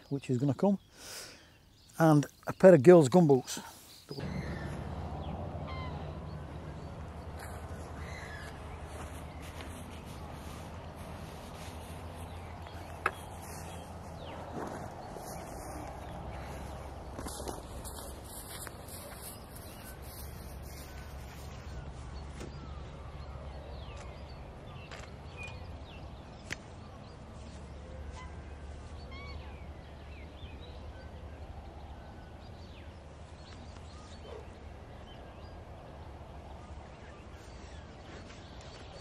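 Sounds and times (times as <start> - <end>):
steady low rumble: 4.2 - 19.0.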